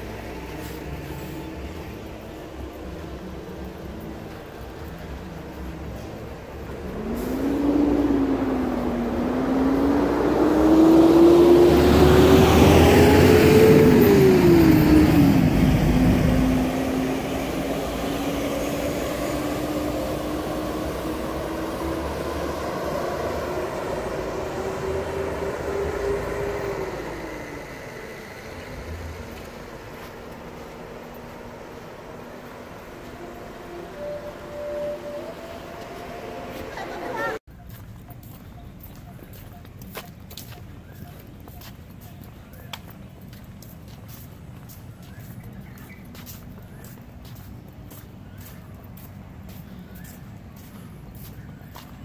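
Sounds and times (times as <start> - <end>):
engine revving: 4.8 - 37.5.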